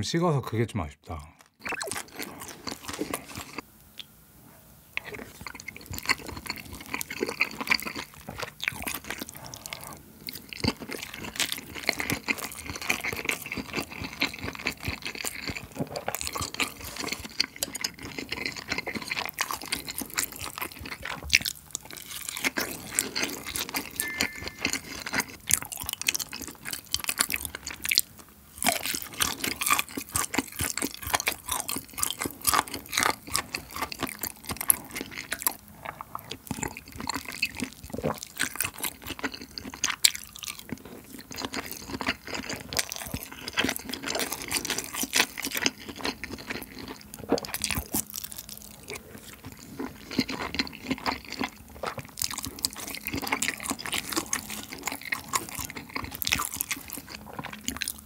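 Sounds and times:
chewing and wet mouth sounds: 0:01.1 - 0:04.2, 0:04.9 - 0:58.0
crunching: 0:05.0 - 0:28.0.

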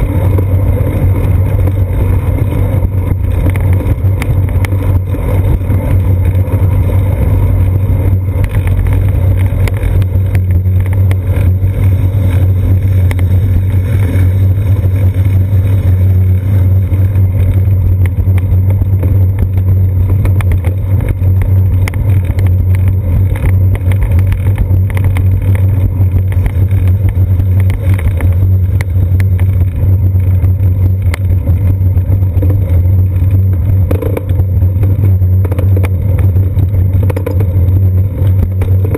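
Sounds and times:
road vibration and wind rumble: 0:00.0 - 0:38.9
bicycle tyre and frame knocks: 0:08.1 - 0:38.9.

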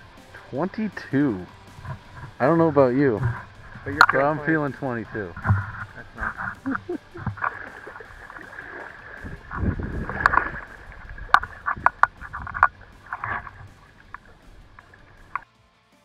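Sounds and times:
river water sloshing and splashing: 0:00.0 - 0:15.4
sharp splashes: 0:00.0 - 0:15.4
clicks: 0:03.1 - 0:07.5.

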